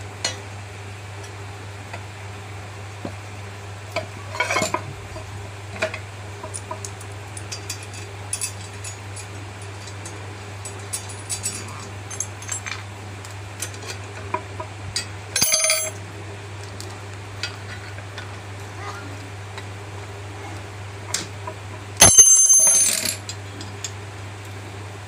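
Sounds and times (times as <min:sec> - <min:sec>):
steady low hum: 0:00.0 - 0:25.0
metal tools clinking: 0:04.3 - 0:04.8, 0:10.7 - 0:12.7, 0:15.4 - 0:16.0, 0:22.0 - 0:23.2
ringing metallic clanks: 0:22.0 - 0:23.1.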